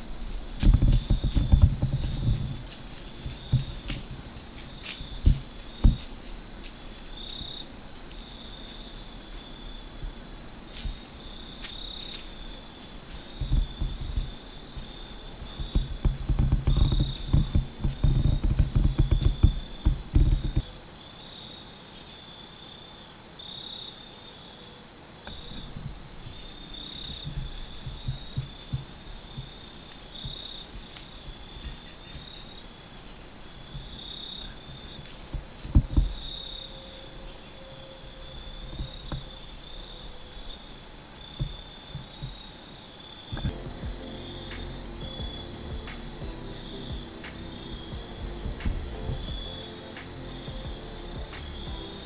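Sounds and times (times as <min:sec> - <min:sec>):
low thuds and rustles: 0:00.0 - 0:07.6, 0:13.1 - 0:20.8, 0:25.3 - 0:32.4, 0:33.6 - 0:36.4, 0:41.3 - 0:42.5, 0:45.1 - 0:49.6
insects chirping: 0:00.0 - 0:52.0.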